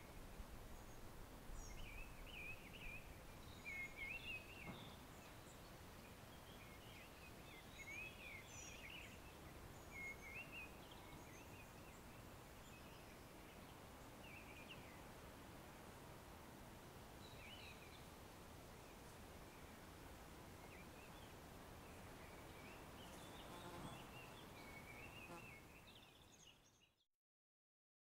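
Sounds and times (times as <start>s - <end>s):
low steady hiss: 0.0s - 27.0s.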